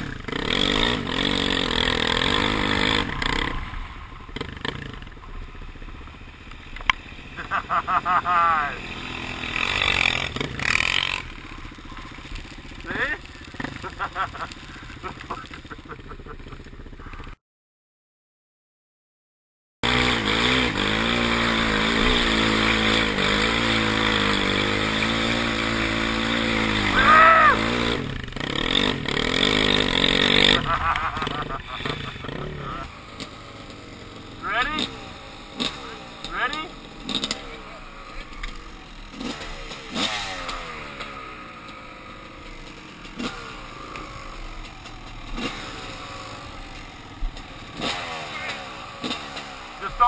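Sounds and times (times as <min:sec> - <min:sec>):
quad engine running hard: 0:00.0 - 0:17.4, 0:19.8 - 0:50.0.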